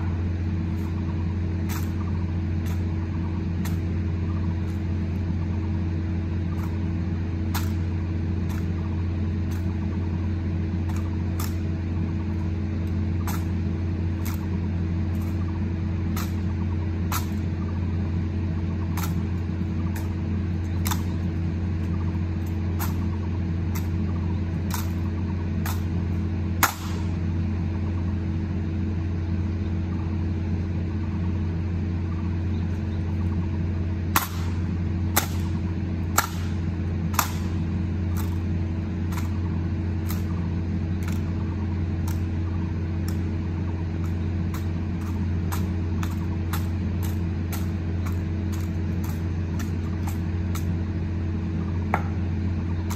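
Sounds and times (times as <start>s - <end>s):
low mechanical hum: 0.0s - 52.9s
rifle butts striking pavement: 26.6s - 27.2s, 34.1s - 38.4s, 39.1s - 39.4s, 41.0s - 41.3s, 51.9s - 52.2s
hands slapping rifles: 36.2s - 37.6s.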